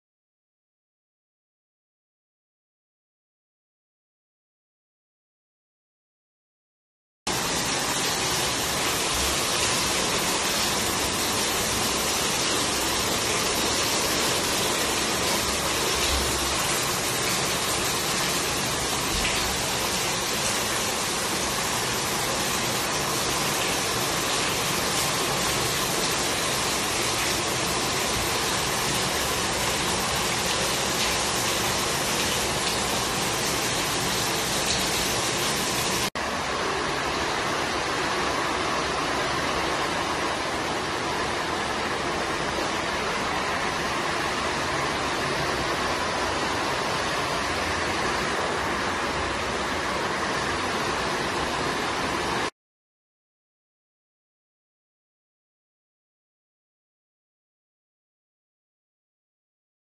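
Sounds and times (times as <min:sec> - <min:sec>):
heavy rain splashing into water: 0:07.3 - 0:52.5.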